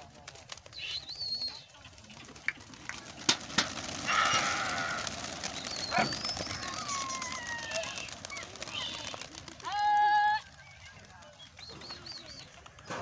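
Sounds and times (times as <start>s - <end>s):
pigeon wings clattering: 0.0s - 13.0s
sharp claps: 2.4s - 3.8s.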